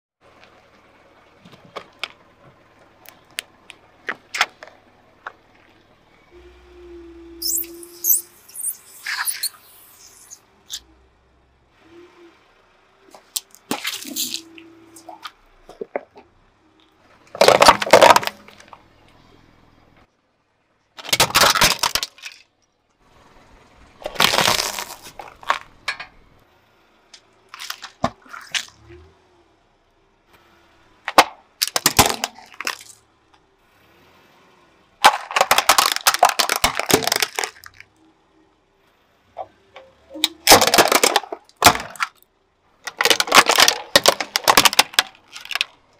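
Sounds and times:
toys cracking under car tyre: 0:13.1 - 0:16.2, 0:17.3 - 0:18.8, 0:21.0 - 0:22.7, 0:24.0 - 0:26.0, 0:27.2 - 0:28.9, 0:31.0 - 0:33.0, 0:35.0 - 0:38.0, 0:40.2 - 0:45.9.

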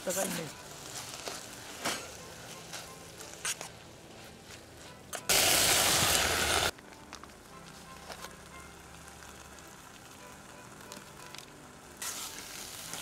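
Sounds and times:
water hissing in hot pot: 0:05.3 - 0:06.8, 0:08.4 - 0:13.0.

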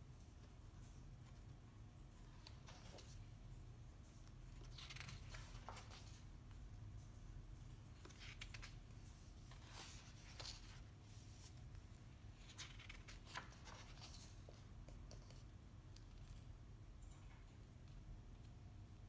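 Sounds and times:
low steady hum: 0:00.0 - 0:19.0
paper pages rustling: 0:02.4 - 0:03.3, 0:04.4 - 0:06.5, 0:07.9 - 0:15.5.

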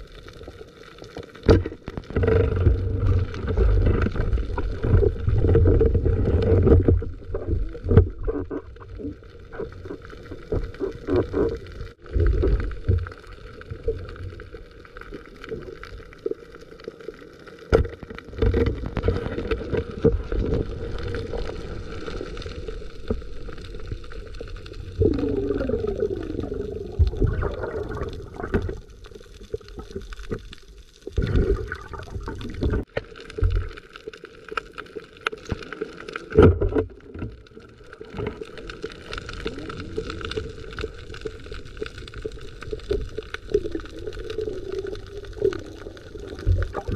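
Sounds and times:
water swishing and gurgling: 0:00.0 - 0:46.9
underwater knocks and thumps: 0:01.4 - 0:13.2, 0:25.0 - 0:28.8, 0:36.4 - 0:37.4, 0:46.3 - 0:46.9.

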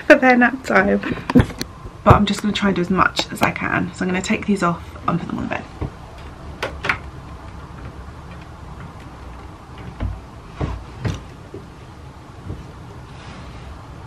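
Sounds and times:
low steady hum: 0:00.0 - 0:14.0
soft knocks and thumps: 0:05.7 - 0:13.1.

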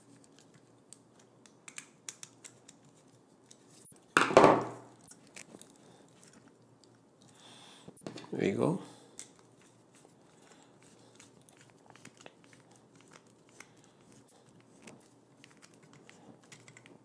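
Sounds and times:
knock: 0:04.2 - 0:04.8.

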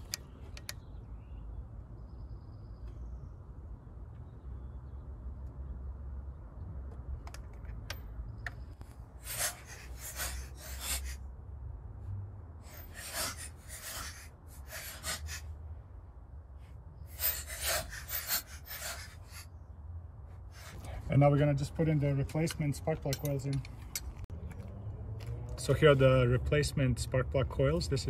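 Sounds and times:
ratchet wrench strokes: 0:09.2 - 0:11.2, 0:12.6 - 0:15.5, 0:17.1 - 0:19.5.

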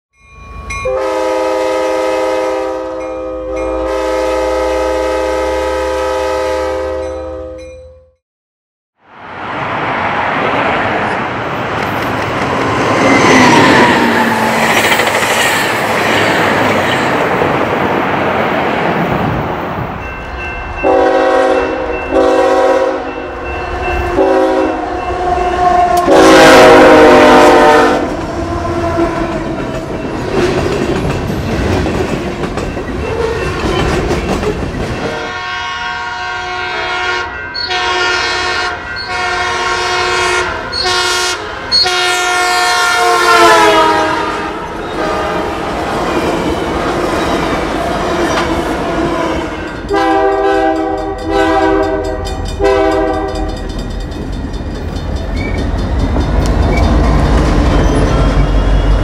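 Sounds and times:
locomotive horn blasts: 0:00.8 - 0:07.7, 0:20.8 - 0:29.6, 0:35.0 - 0:45.6, 0:49.0 - 0:53.6
short horn blasts: 0:00.9 - 0:07.6, 0:20.8 - 0:23.2, 0:24.1 - 0:29.2, 0:35.1 - 0:45.5, 0:49.9 - 0:53.5
train wheels rumbling on rail: 0:09.4 - 0:59.0.

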